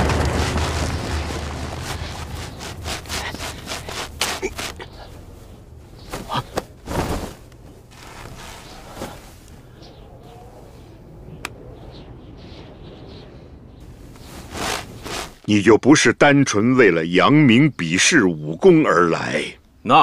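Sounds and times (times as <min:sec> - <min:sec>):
low boom: 0:00.0 - 0:05.8
footsteps in snow: 0:00.0 - 0:09.7, 0:13.8 - 0:15.5
robe rustling: 0:00.0 - 0:09.7, 0:13.8 - 0:15.5.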